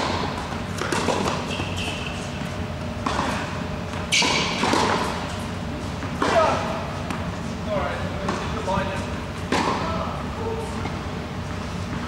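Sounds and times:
ball bouncing on hard court: 0:00.0 - 0:05.2
racket hitting tennis ball: 0:00.0 - 0:07.2, 0:09.5 - 0:09.9.

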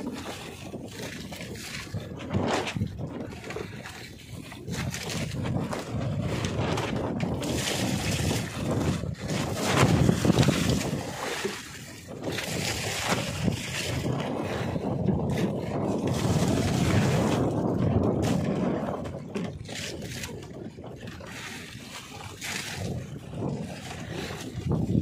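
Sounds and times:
bucket of water splashing: 0:00.0 - 0:25.0
sea water sloshing around boat: 0:00.0 - 0:25.0
wind buffeting microphone: 0:00.0 - 0:25.0.

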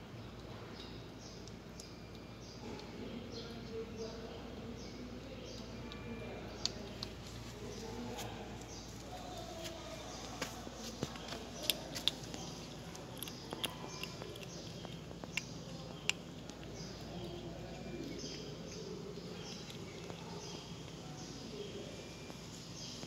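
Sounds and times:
kitten crunching fish bones: 0:10.5 - 0:21.0.

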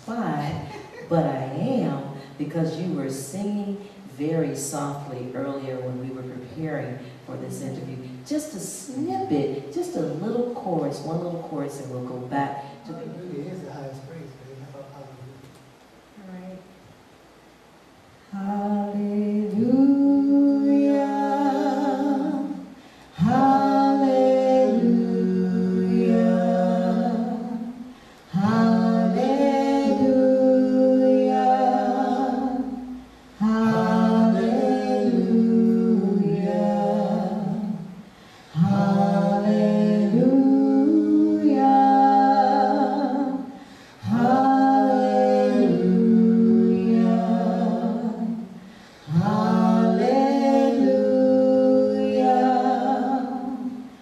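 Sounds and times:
man and woman singing in harmony: 0:18.3 - 0:54.0.

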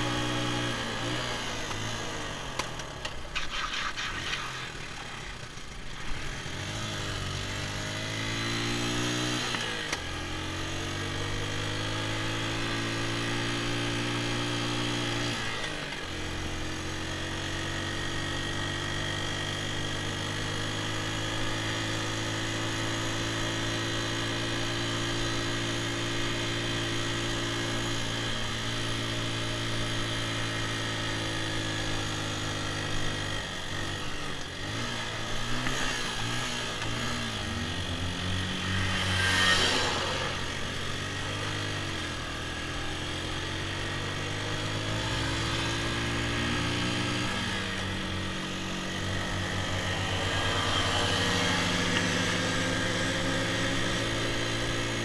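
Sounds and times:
dirt bike engine running: 0:00.0 - 0:55.0
rush of noise: 0:03.3 - 0:05.7.

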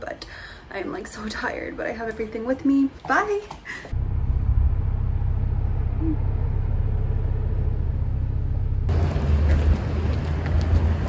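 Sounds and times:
car driving rumble: 0:03.9 - 0:11.0.

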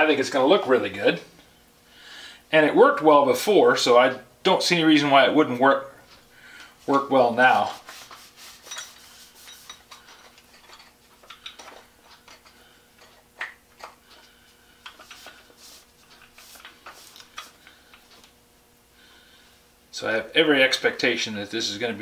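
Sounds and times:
cloth rubbing on wood: 0:07.5 - 0:09.8, 0:15.1 - 0:17.6.

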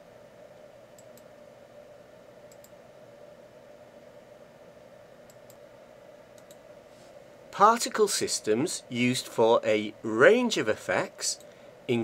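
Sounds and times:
faint room hum: 0:00.0 - 0:12.0
computer mouse clicks: 0:01.0 - 0:01.4, 0:02.4 - 0:02.8, 0:05.2 - 0:05.6, 0:06.3 - 0:06.6.

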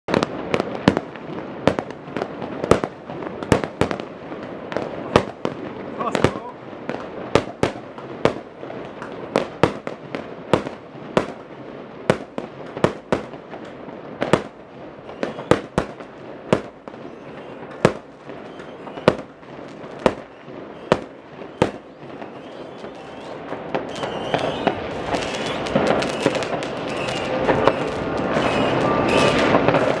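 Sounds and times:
fireworks and firecrackers banging: 0:00.0 - 0:30.0.

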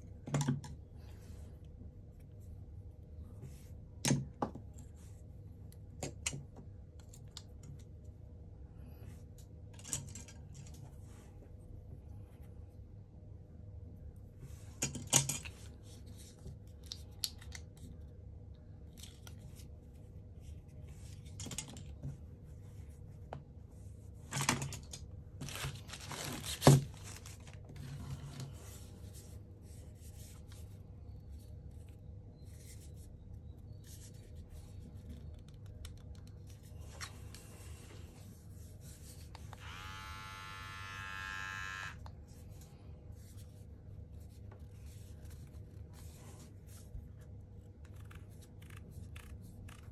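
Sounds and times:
packaging rustling and crinkling: 0:25.4 - 0:28.4
electric trimmer motor running: 0:39.6 - 0:42.0.

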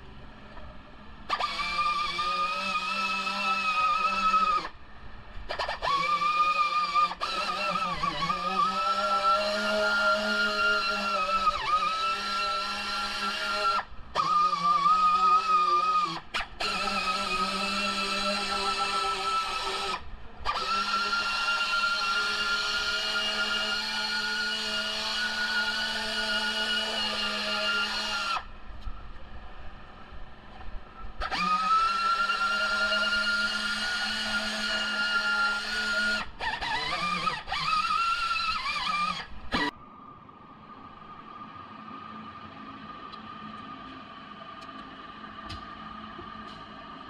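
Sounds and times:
rotary power tool whining: 0:01.2 - 0:28.5, 0:31.2 - 0:39.8.

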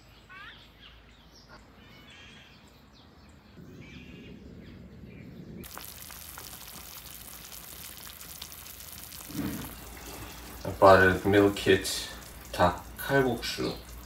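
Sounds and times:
small birds chirping: 0:00.0 - 0:14.0
pot boiling with bubbling hiss: 0:05.6 - 0:14.0.

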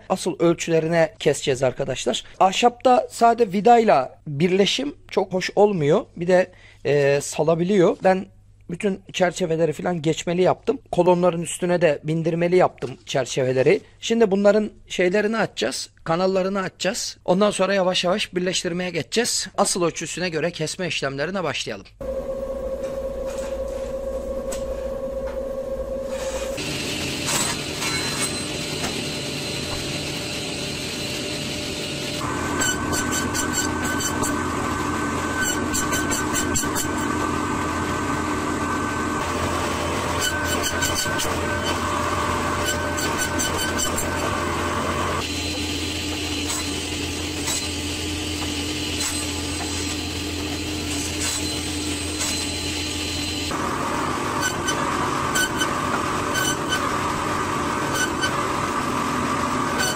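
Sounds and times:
panel saw humming and whining: 0:22.0 - 0:59.9.

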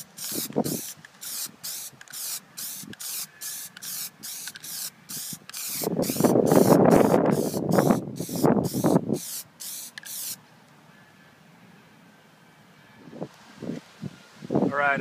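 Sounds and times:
aerosol can spraying in bursts: 0:00.0 - 0:10.4.

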